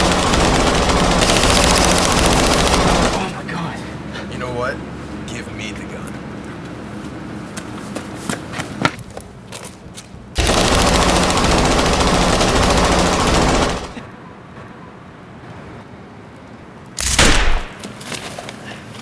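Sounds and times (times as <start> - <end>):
automatic gunfire: 0.0 - 3.3, 10.4 - 14.0.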